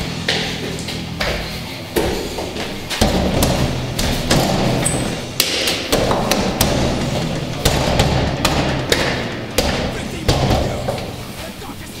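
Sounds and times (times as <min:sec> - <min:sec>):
fist pounding on wooden door: 0:02.0 - 0:04.8, 0:05.4 - 0:11.1.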